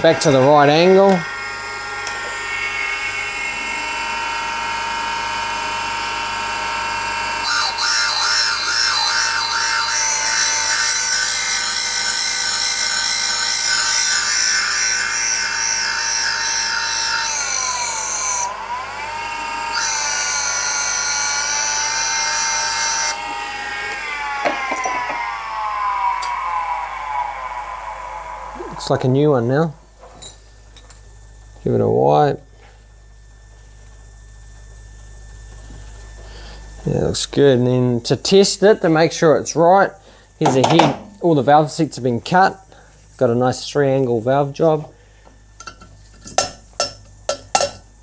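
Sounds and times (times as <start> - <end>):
machine motors whining: 0.0 - 29.4
grinding wheel hiss: 7.4 - 29.3.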